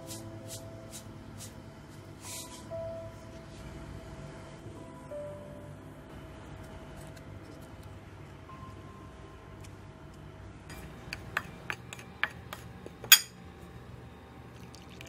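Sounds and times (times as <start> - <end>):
spoon clinking on ceramic plate: 13.0 - 13.4.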